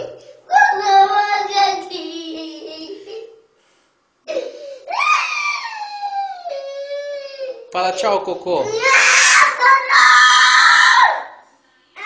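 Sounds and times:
toddler crying: 0:04.3 - 0:07.7, 0:08.6 - 0:11.2.

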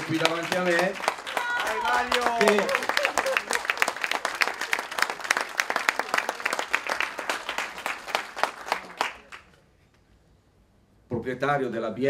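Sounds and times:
people applauding: 0:00.0 - 0:09.6.

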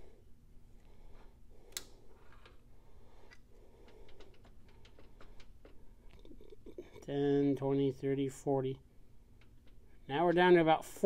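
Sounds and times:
low steady hum: 0:00.0 - 0:11.0
metal clicks and ticks: 0:03.3 - 0:06.4, 0:09.4 - 0:10.5.

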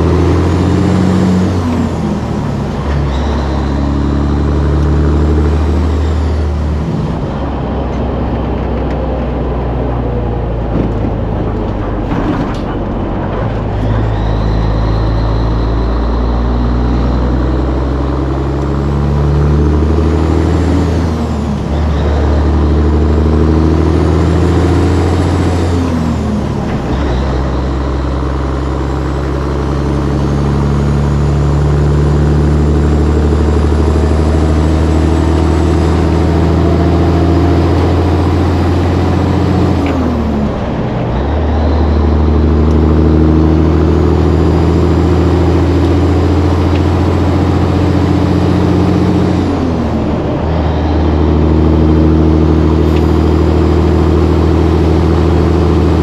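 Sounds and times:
truck diesel engine under load: 0:00.0 - 0:56.0
wind and road noise: 0:00.0 - 0:56.0
whine rising and falling: 0:13.2 - 0:56.0.

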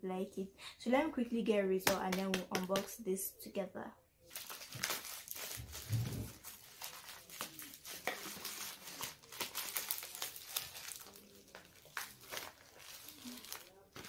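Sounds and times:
plastic bag crinkling: 0:04.3 - 0:14.0.

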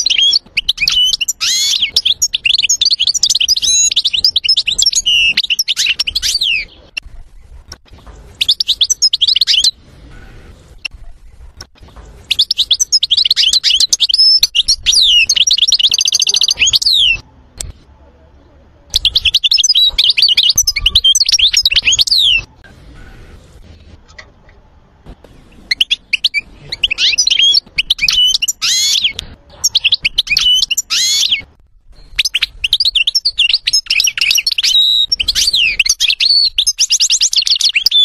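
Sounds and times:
goldfinch singing: 0:00.0 - 0:07.5, 0:12.2 - 0:17.2, 0:25.4 - 0:38.0.

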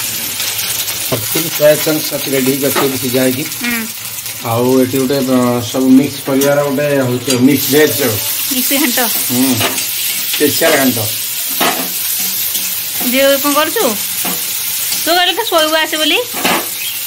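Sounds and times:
onions sizzling in oil: 0:00.0 - 0:17.0
person speaking: 0:02.5 - 0:04.0
spatula scraping a wok: 0:07.2 - 0:13.2.

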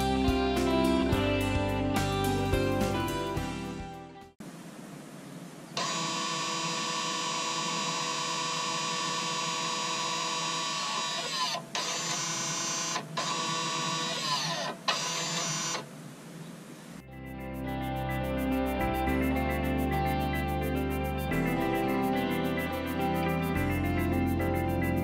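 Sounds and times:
electric brake motor whining: 0:05.8 - 0:15.9.

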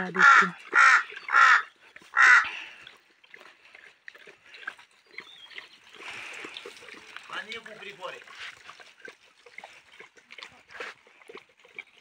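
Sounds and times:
crow cawing: 0:00.2 - 0:02.6
dog lapping and chewing: 0:00.5 - 0:12.0.

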